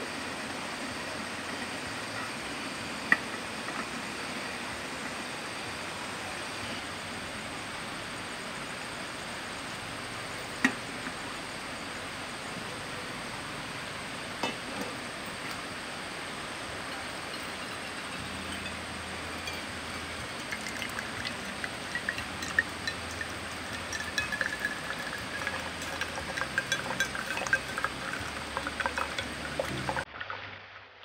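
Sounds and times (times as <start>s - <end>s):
gas stove hiss: 0.0s - 30.0s
metal kettle clinks: 16.9s - 30.0s.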